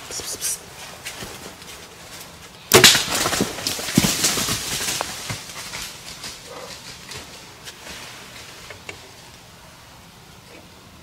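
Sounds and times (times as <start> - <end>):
deer crashing through dry leaves: 2.7 - 8.6.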